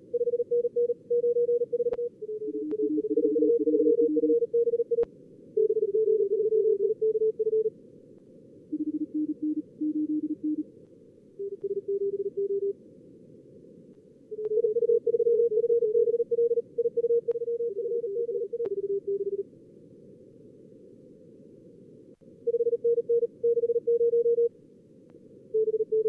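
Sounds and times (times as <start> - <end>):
morse code tones: 0.1 - 5.0, 8.7 - 10.6, 11.4 - 12.7, 14.4 - 19.4, 22.5 - 24.5.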